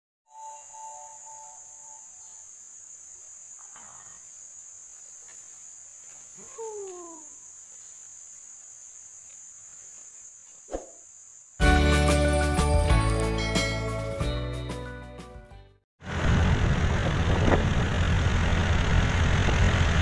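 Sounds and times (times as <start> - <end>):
insects droning: 0.3 - 11.7.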